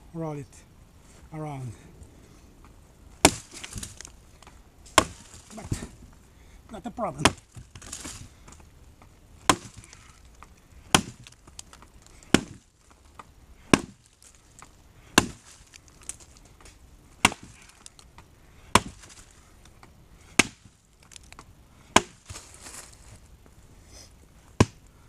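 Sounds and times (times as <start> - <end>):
axe chopping into a log: 3.2 - 4.1, 4.9 - 6.0, 7.1 - 8.3, 9.4 - 10.1, 10.9 - 12.7, 13.6 - 14.0, 15.1 - 16.2, 17.2 - 17.9, 18.7 - 19.1, 20.3 - 20.7, 21.9 - 22.4, 24.6 - 24.8
wood chips ticking: 3.3 - 5.8, 6.7 - 18.3, 20.8 - 21.5.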